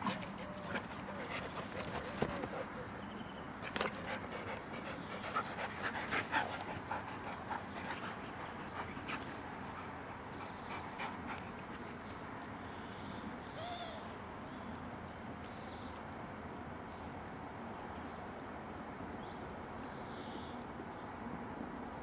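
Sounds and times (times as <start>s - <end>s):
dogs panting: 0.0s - 12.2s.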